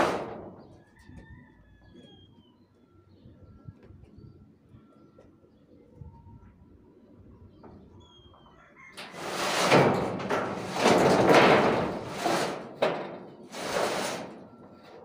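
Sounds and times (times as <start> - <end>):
metal roofing sheet scraping: 0.0 - 0.8, 9.0 - 15.0.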